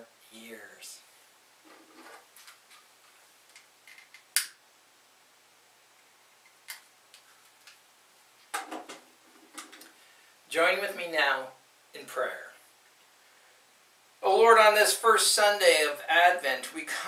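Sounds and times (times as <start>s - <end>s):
handling taps and rustles: 8.4s - 9.9s.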